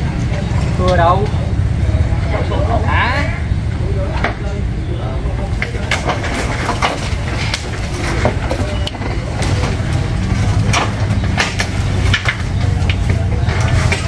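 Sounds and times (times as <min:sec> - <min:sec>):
sharp clicks and cracks: 0:05.5 - 0:14.0.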